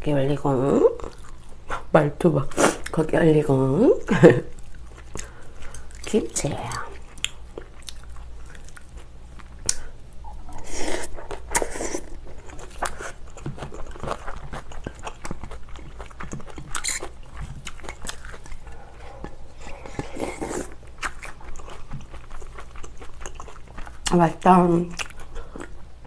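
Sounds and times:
steady low hum: 0.0s - 26.0s
wet chewing with mouth clicks: 1.0s - 1.6s, 4.5s - 26.0s.

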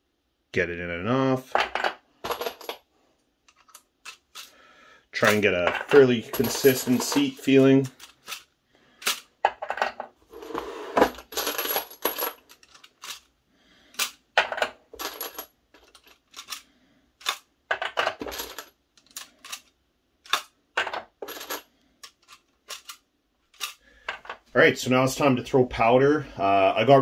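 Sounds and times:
brass rifle cases clinking: 5.2s - 10.2s, 14.0s - 24.5s.

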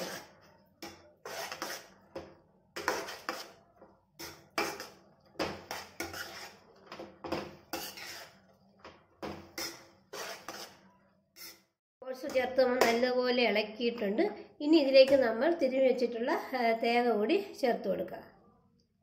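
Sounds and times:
spoon scraping in wok: 0.0s - 2.0s, 2.8s - 3.6s, 4.2s - 6.8s, 7.6s - 8.6s, 9.4s - 11.6s.

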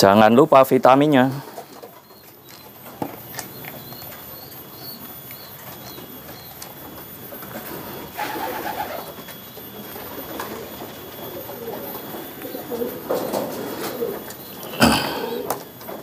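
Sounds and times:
pigeons cooing: 7.4s - 16.0s.

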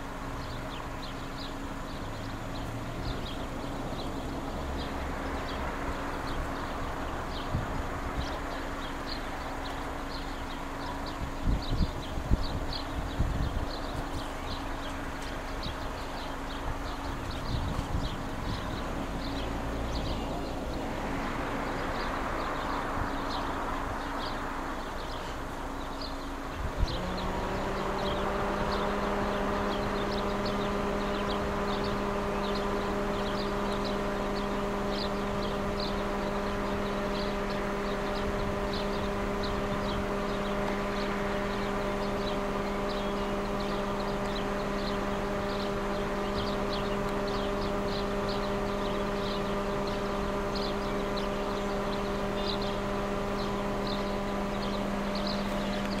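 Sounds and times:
siren wailing: 26.7s - 56.0s.

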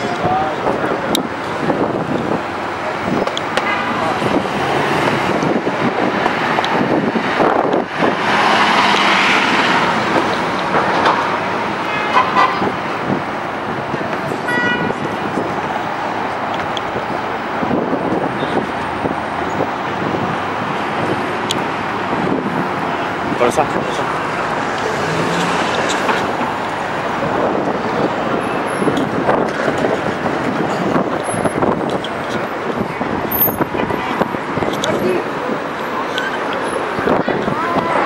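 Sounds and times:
street traffic: 0.0s - 38.0s
car horn toots: 14.5s - 15.0s.

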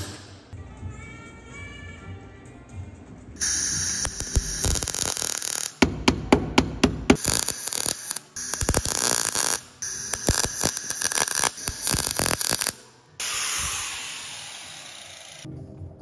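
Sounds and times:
welder arc crackling: 3.4s - 5.8s, 7.2s - 15.5s.

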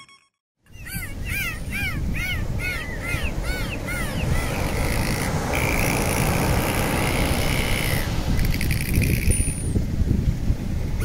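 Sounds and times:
dolphins whistling underwater: 0.8s - 9.8s
rushing water: 1.4s - 10.1s.

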